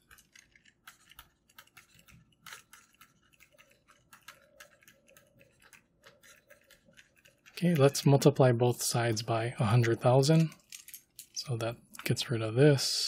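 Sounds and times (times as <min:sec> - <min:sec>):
stylus tapping and scratching on tablet: 0:00.0 - 0:09.2.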